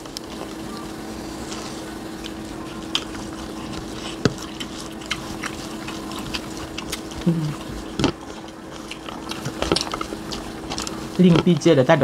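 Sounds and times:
chewing and lip-smacking: 0.0 - 11.7
low hum from a voice: 0.0 - 12.0
steady low hum: 0.0 - 12.0.

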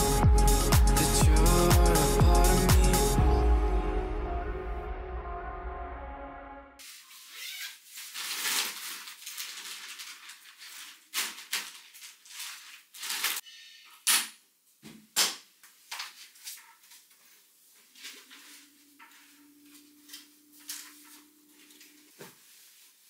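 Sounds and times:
rustling: 6.8 - 13.4, 15.8 - 23.0.

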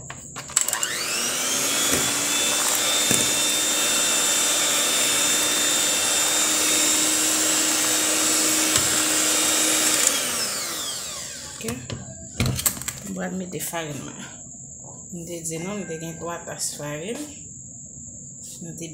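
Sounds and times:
electric hand mixer whining: 0.5 - 11.7.

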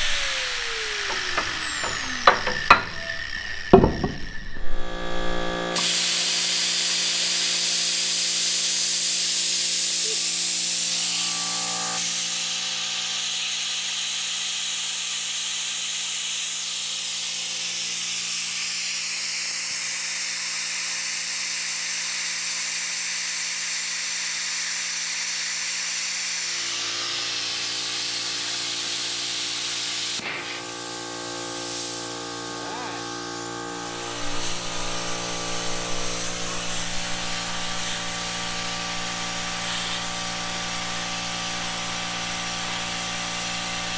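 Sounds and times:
welding arc crackling and hissing: 0.0 - 2.4, 12.0 - 43.9.

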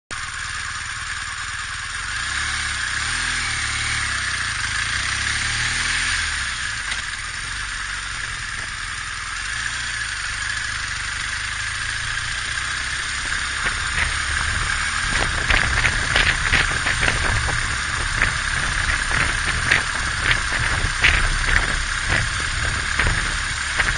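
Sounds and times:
motorcycle engine running: 0.1 - 23.9
steady rushing noise: 4.4 - 23.9
sharp rattles and knocks: 10.5 - 23.9.

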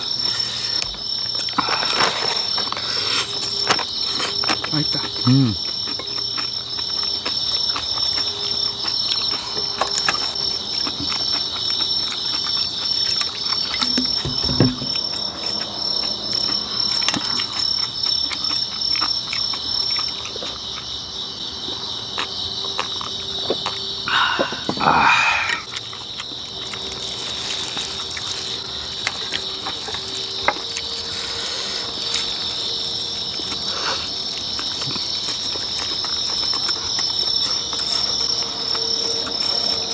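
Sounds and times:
chewing: 0.0 - 39.9
crickets chirping: 0.0 - 39.9
breathy exhale: 24.1 - 25.6.

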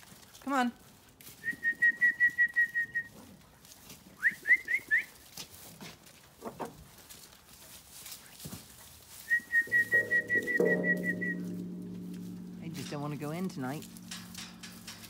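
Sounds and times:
trilled whistle: 9.3 - 11.4.

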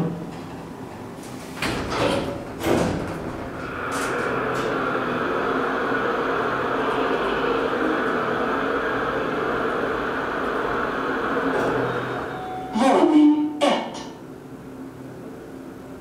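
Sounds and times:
hydraulic elevator hum and hiss: 1.2 - 12.8.

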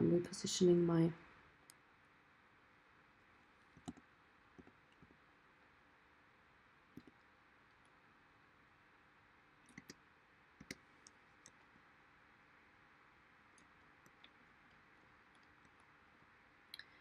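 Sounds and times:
computer mouse clicks: 3.7 - 5.2, 7.0 - 7.2, 9.6 - 10.0, 10.6 - 11.7.

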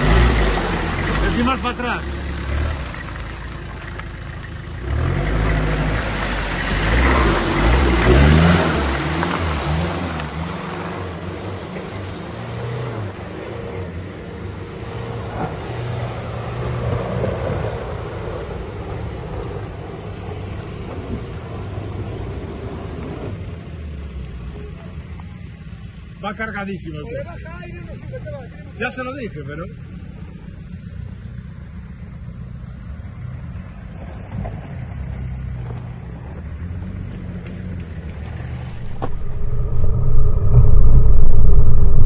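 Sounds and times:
off-road vehicle engine revving: 0.0 - 24.4.

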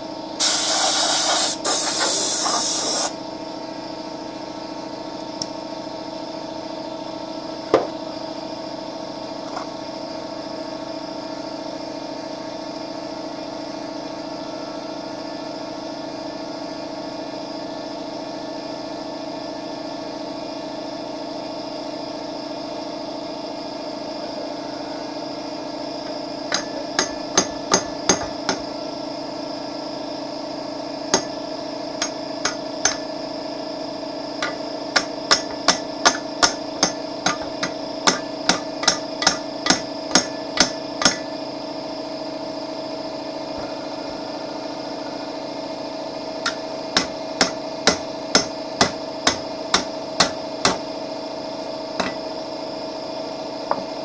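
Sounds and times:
steady machine hum: 0.0 - 54.0
hammer striking metal: 34.4 - 41.3, 46.4 - 50.8.

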